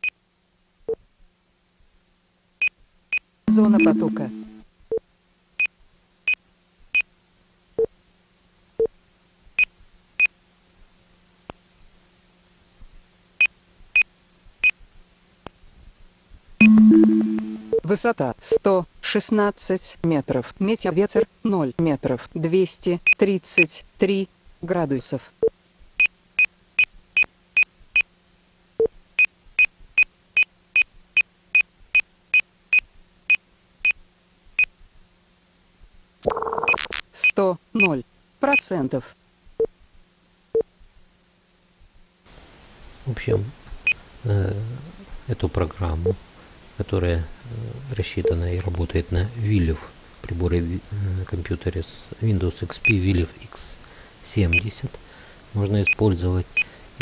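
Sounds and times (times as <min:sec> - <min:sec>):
faint steady hum: 0:00.0 - 0:57.0
short electronic beeps: 0:03.5 - 0:04.6, 0:16.6 - 0:17.9, 0:36.2 - 0:37.0.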